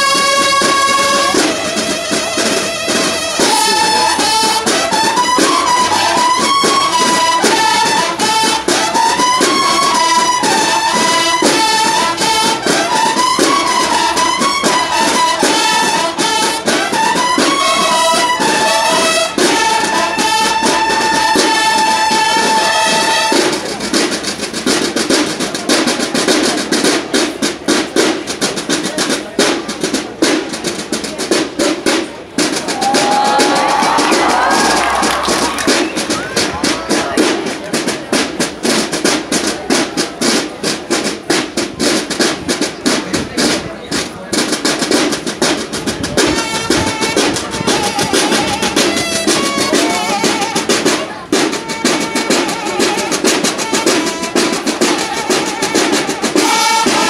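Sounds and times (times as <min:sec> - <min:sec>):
brass horns playing melody: 0:00.0 - 0:23.6, 0:46.3 - 0:57.0
snare drums cadence: 0:00.0 - 0:25.8, 0:31.3 - 0:57.0.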